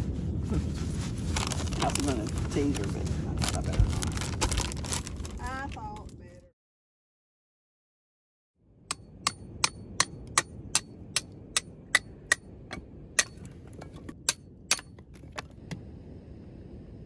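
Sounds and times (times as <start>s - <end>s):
low rush of noise: 0.0s - 5.4s, 8.7s - 14.7s, 15.5s - 17.0s.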